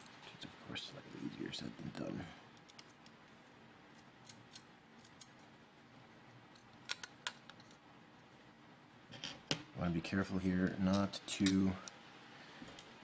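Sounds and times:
small parts clicking and tapping: 2.6s - 3.3s, 6.5s - 7.8s.

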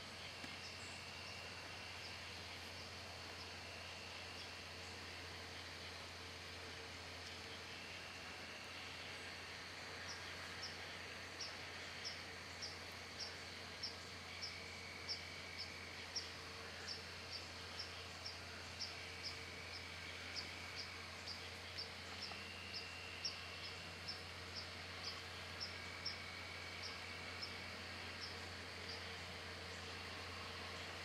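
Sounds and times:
faint insect trills: 0.0s - 31.0s
cricket chirping: 10.0s - 30.9s.

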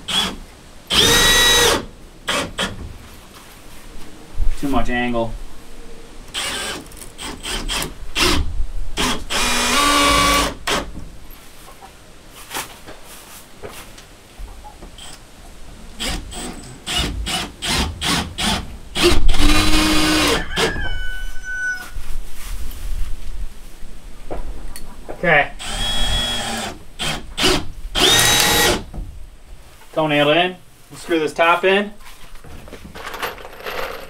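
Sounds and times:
cordless drill running: 0.1s - 2.7s, 6.3s - 8.4s, 9.0s - 10.8s, 16.0s - 20.4s, 25.6s - 28.8s.

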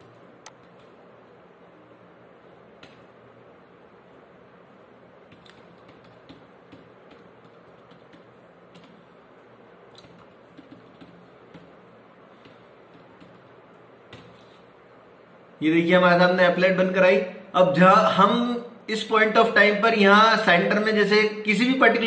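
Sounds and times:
faint background hiss: 0.0s - 22.0s
keyboard keystrokes: 5.3s - 9.0s, 9.9s - 11.8s.

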